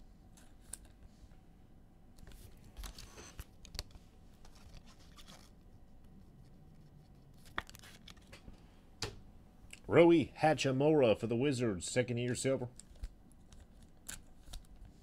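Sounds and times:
cards and foil wrappers rustling: 0:07.3 - 0:08.3.

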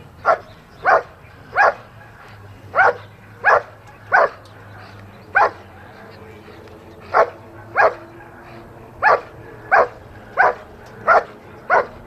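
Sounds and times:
dog barking: 0:00.2 - 0:12.0.

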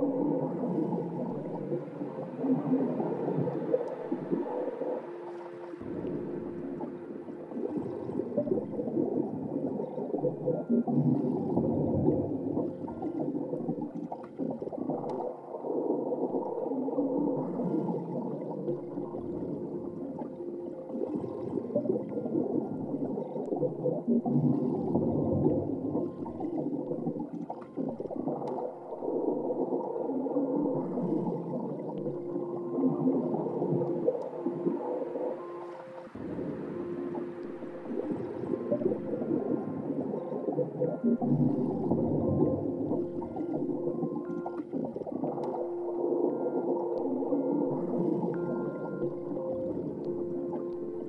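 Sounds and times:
low churning underwater gurgle: 0:00.0 - 0:51.0
faint held tones: 0:29.9 - 0:51.0.

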